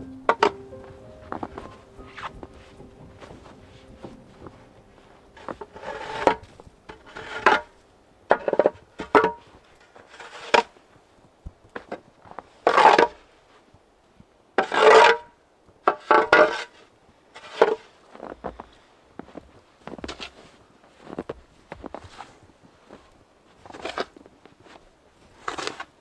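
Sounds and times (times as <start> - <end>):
shovel scraping snow: 1.5 - 7.8, 9.4 - 10.8, 17.4 - 18.3, 23.6 - 24.2, 25.3 - 26.0.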